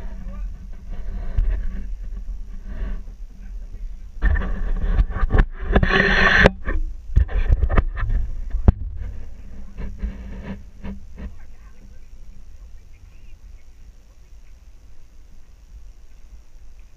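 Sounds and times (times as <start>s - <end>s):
engine running low: 0.0s - 16.9s
scrapes and knocks on rocks: 4.2s - 12.0s.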